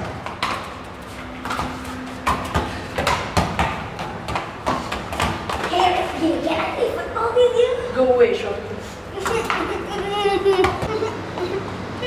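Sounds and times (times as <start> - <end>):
football knocking on tiled floor: 0.0 - 0.7, 1.4 - 5.9.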